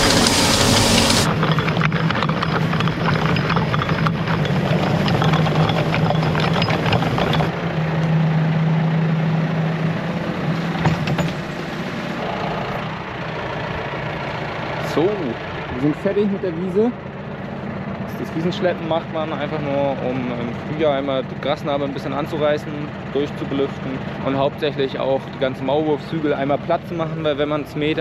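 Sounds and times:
chain harrow rattling over turf: 0.0 - 7.6
tractor engine running: 0.0 - 8.6, 9.4 - 28.0.

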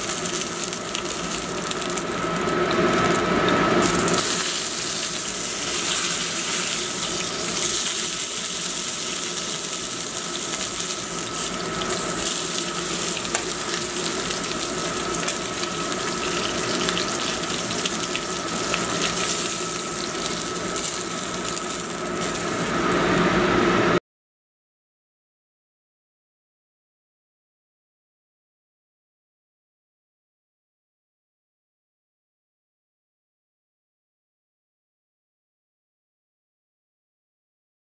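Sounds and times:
steak sizzling in a skillet: 0.0 - 23.4.

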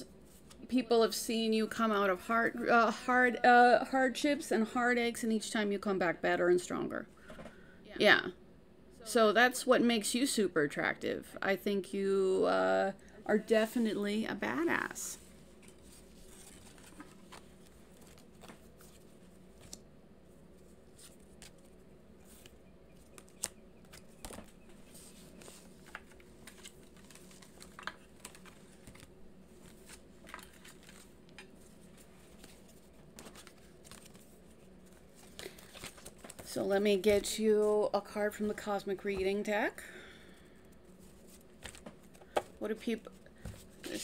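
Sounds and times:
low room hum: 0.0 - 44.0
cards shuffled by hand: 15.6 - 19.8, 20.9 - 36.6.

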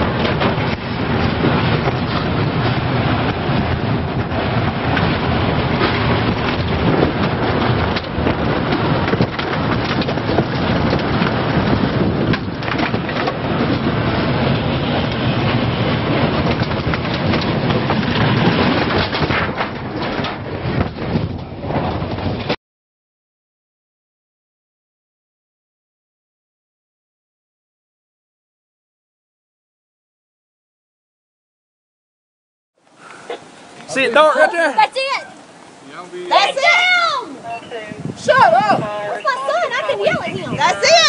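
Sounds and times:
tornado winds roaring: 0.0 - 22.6, 32.8 - 41.0.

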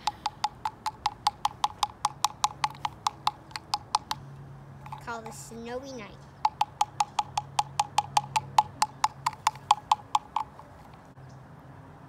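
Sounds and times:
steady clicking: 0.0 - 4.2, 4.8 - 5.4, 6.4 - 11.0.

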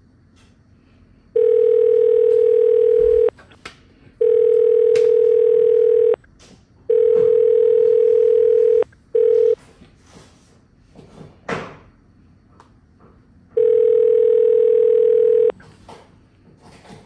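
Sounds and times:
steady telephone tone: 1.4 - 3.3, 4.2 - 6.2, 6.9 - 9.6, 13.6 - 15.6.

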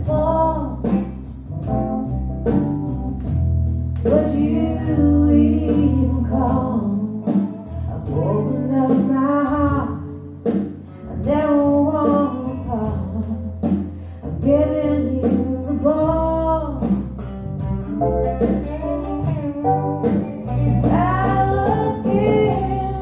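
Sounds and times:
deep bass line: 0.0 - 23.0
song through speakers: 18.6 - 23.0.

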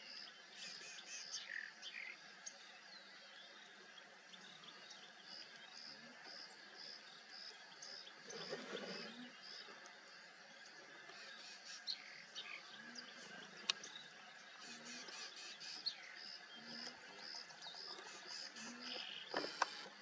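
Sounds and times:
wild birds calling: 4.6 - 20.0.

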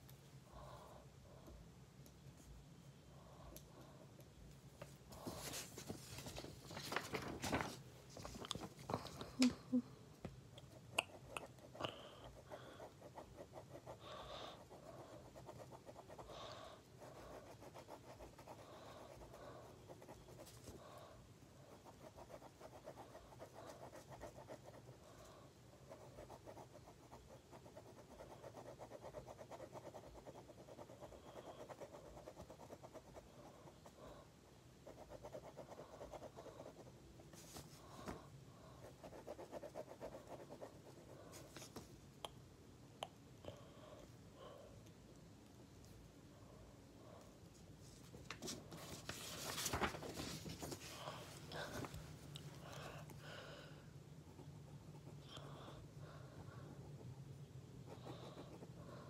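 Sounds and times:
low steady hum: 0.0 - 59.0
pen scratching on paper: 14.6 - 16.3, 16.9 - 20.7, 21.7 - 25.0, 38.8 - 41.4.

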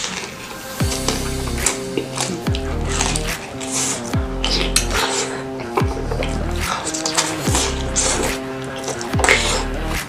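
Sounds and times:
background music with sustained notes: 0.0 - 10.0.

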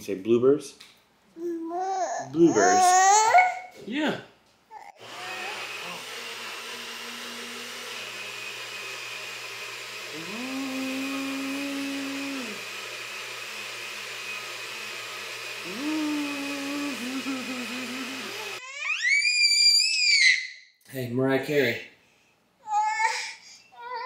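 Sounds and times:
blender whirring: 4.9 - 19.1.

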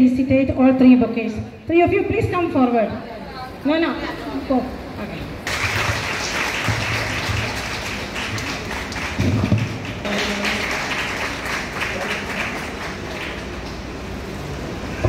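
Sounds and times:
audience applauding: 5.4 - 14.2.

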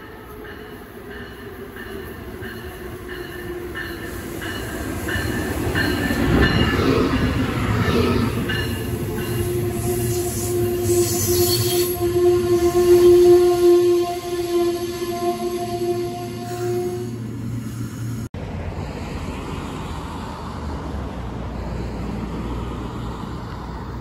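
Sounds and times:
locomotive bell ringing: 0.0 - 7.4
train passing: 0.0 - 24.0.

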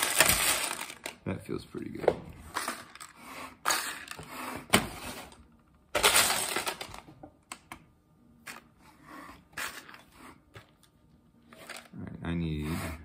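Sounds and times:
plastic bricks clattering in tub: 0.0 - 1.2, 5.9 - 7.1.

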